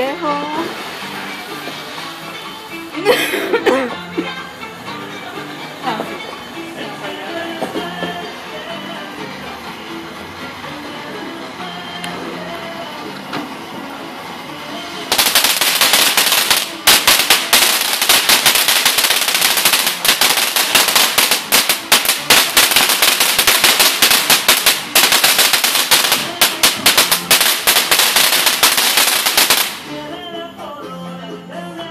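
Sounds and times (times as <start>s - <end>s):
ground fountain firework crackling: 0.0s - 30.3s.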